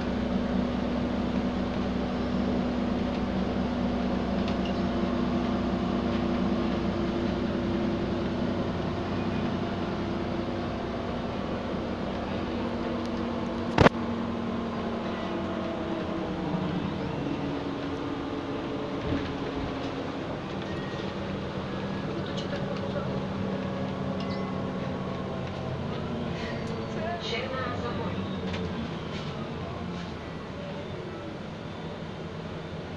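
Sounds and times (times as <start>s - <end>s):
bus engine drone: 0.0s - 32.9s.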